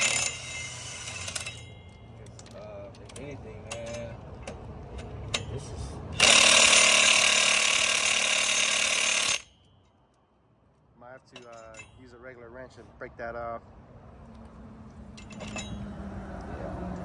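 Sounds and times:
impact wrench hammering a nut: 0:00.0 - 0:02.0, 0:06.2 - 0:09.7.

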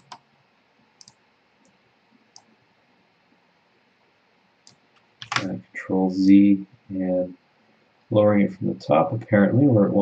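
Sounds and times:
computer mouse clicks: 0:00.0 - 0:00.3, 0:01.0 - 0:02.5, 0:04.6 - 0:05.5.

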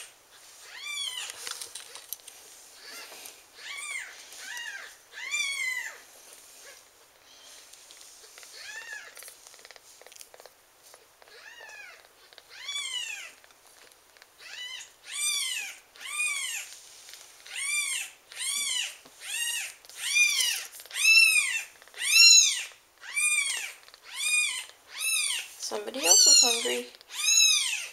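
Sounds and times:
kitten squealing: 0:02.8 - 0:06.0, 0:11.3 - 0:13.4, 0:14.4 - 0:16.7, 0:17.5 - 0:27.9.

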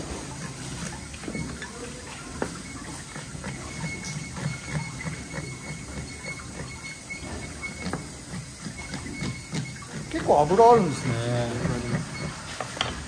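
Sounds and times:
metal spoon scraping fish: 0:02.5 - 0:12.4.

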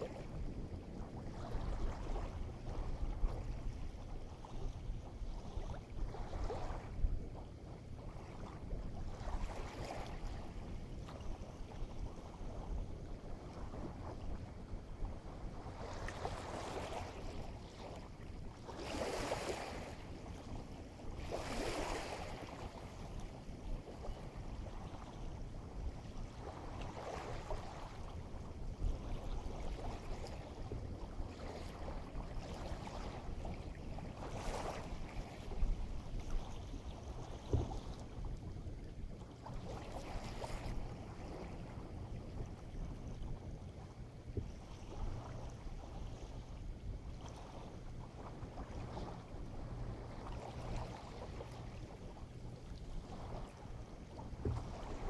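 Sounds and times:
waves washing onto shore: 0:00.0 - 0:43.0
wind rumble on microphone: 0:00.0 - 0:55.0.

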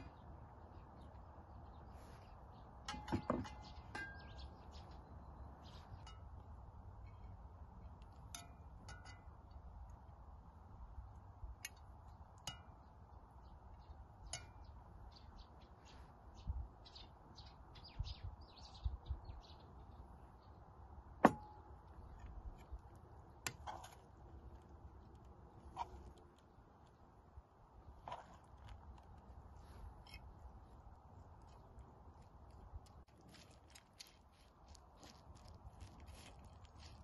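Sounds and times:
small birds chirping: 0:00.0 - 0:08.2, 0:11.7 - 0:21.0.

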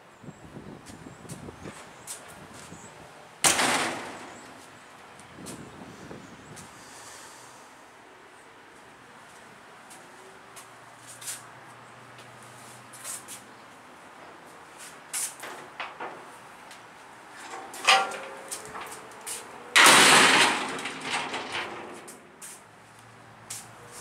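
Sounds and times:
metal knocks and clicks: 0:03.5 - 0:04.6, 0:17.4 - 0:19.1, 0:19.8 - 0:22.2.

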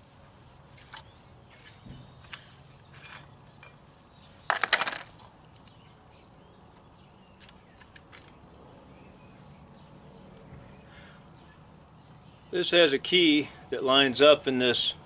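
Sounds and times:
metallic rattle: 0:00.8 - 0:03.8
metal parts clinking: 0:01.5 - 0:03.8.

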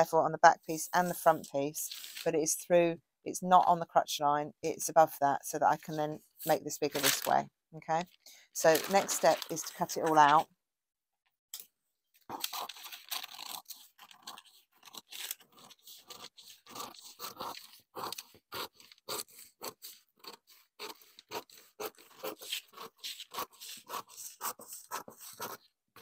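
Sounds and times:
scissors cutting paper: 0:12.3 - 0:25.7.

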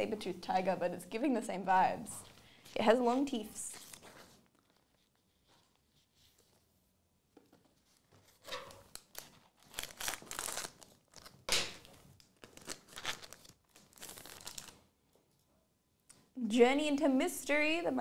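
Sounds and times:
foil pack tearing and crinkling: 0:09.0 - 0:14.8.

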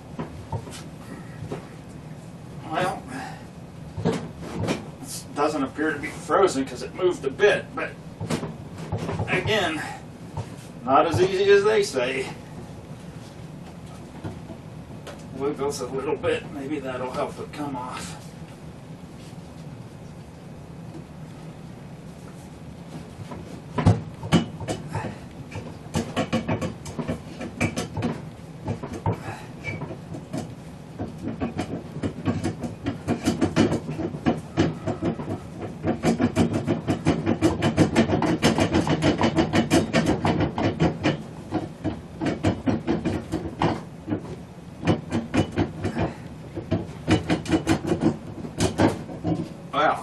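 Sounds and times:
motor cover rattling and clicking: 0:25.5 - 0:49.6.

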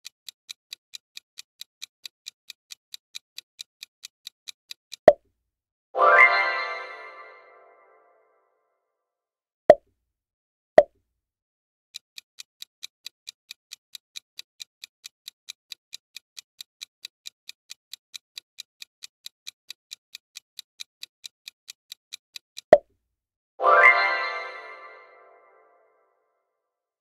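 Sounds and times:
clock ticking: 0:00.0 - 0:05.2, 0:11.9 - 0:22.8.

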